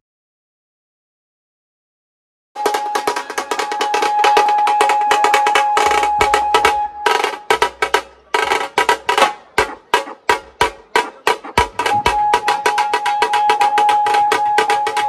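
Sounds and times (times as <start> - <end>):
snare drums beaten with sticks: 2.6 - 15.0
held high note: 11.0 - 15.0.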